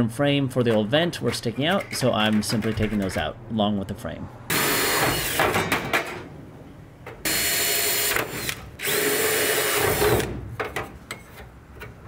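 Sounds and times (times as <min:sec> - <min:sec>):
cordless drill drilling out rivets: 0:07.3 - 0:10.3.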